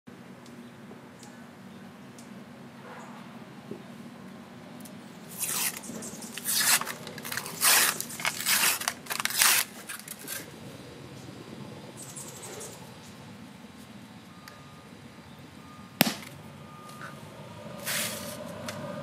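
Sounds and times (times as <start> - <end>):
paper label ripping: 5.3 - 10.4.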